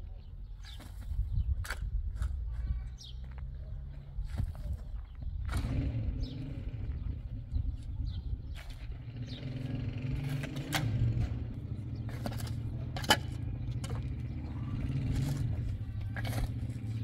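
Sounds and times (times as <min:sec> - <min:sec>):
hoe scraping stony soil: 0:04.2 - 0:17.0.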